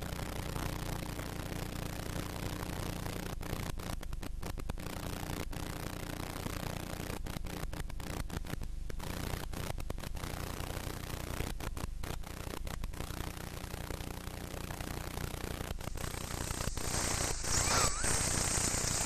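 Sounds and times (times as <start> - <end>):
tape hiss: 0.0 - 19.0
low hum: 14.0 - 19.0.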